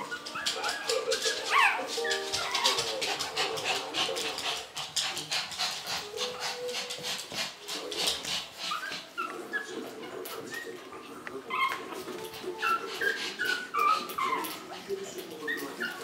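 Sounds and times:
puppy squeaks and yips: 0:00.0 - 0:02.9, 0:11.5 - 0:12.0, 0:12.6 - 0:14.6, 0:15.4 - 0:16.0
puppies whimpering: 0:00.0 - 0:16.0.

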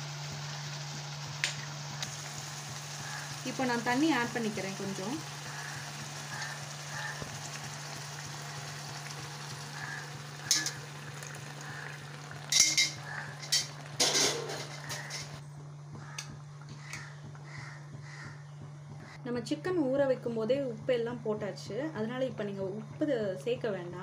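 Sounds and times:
food sizzling in a pan: 0:00.0 - 0:15.4
spoon scraping a pan: 0:10.4 - 0:10.9, 0:12.5 - 0:15.4.

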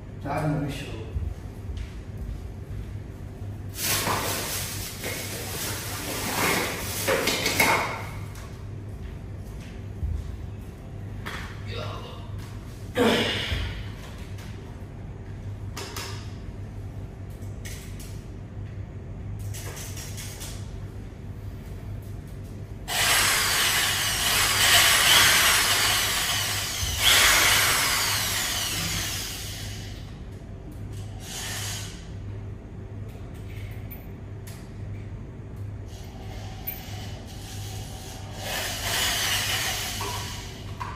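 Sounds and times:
electric drill running: 0:22.9 - 0:30.0.

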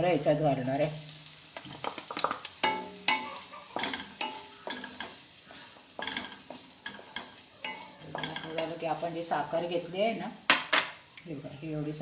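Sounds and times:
coconut sizzling in a pan: 0:00.0 - 0:12.0
spatula scraping a pan: 0:02.6 - 0:10.0.

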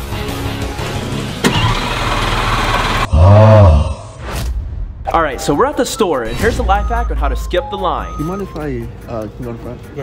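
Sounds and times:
car engine running: 0:00.9 - 0:03.1.

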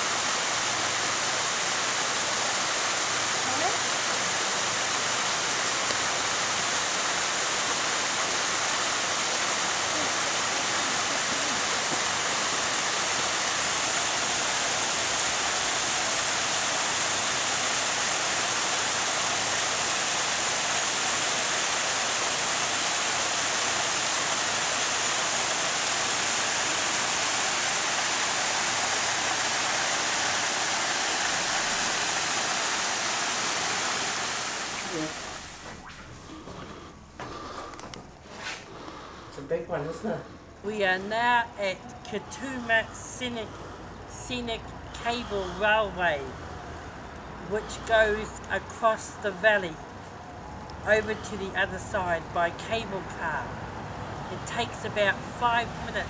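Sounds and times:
waterfall rushing over rock: 0:00.0 - 0:35.8.

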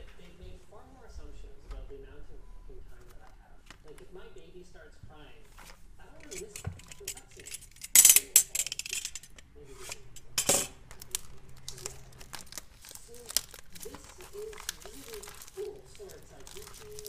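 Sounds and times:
plastic packaging crackling: 0:05.6 - 0:17.0.

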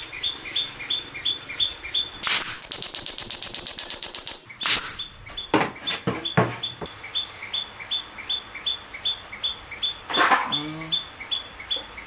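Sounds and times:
boards knocking: 0:05.5 - 0:06.9.

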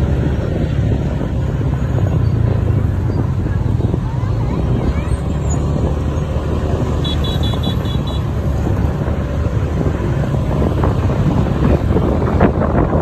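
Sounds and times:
road traffic rumble: 0:00.0 - 0:13.0
wind on microphone: 0:08.2 - 0:13.0.

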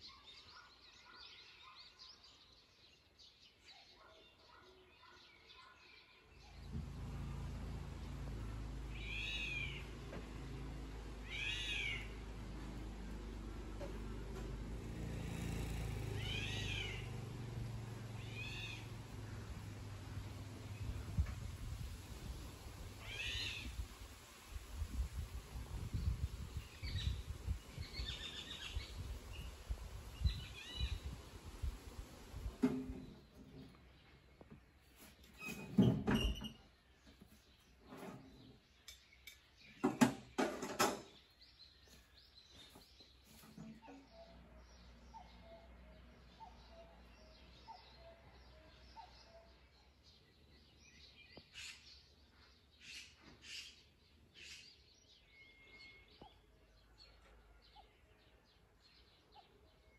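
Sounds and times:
low steady rumble: 0:06.6 - 0:33.4
sharp clattering knocks: 0:39.8 - 0:41.2.

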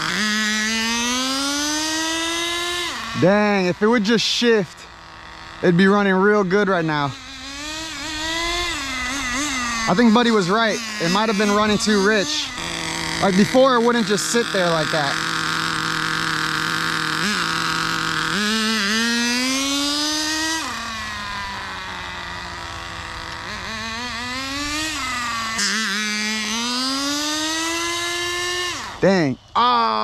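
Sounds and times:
small model engine revving: 0:00.0 - 0:30.0.

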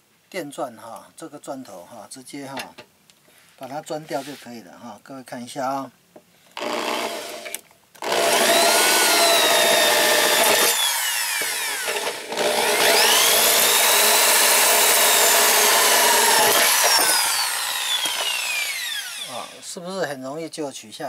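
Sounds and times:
electric drill whining: 0:06.6 - 0:19.7.

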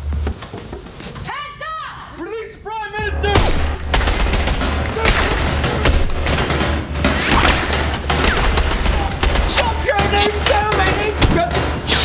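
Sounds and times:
rapid gunfire: 0:03.9 - 0:12.0.

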